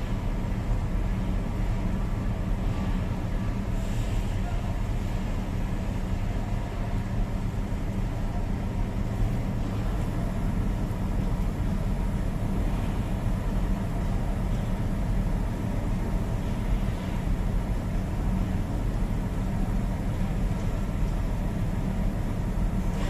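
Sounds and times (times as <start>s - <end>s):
diesel engine running: 5.9s - 23.0s.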